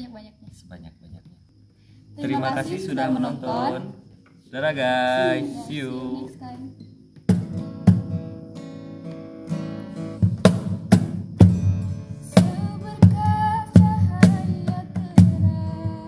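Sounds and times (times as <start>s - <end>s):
woman singing: 2.2s - 3.9s, 5.2s - 6.7s, 12.2s - 16.0s
acoustic guitar strumming: 2.2s - 16.0s
cajon drum beat: 7.2s - 8.4s, 10.1s - 16.0s.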